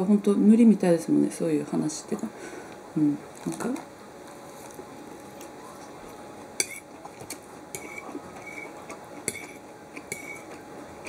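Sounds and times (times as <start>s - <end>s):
fork scraping a ceramic plate: 6.6s - 10.6s.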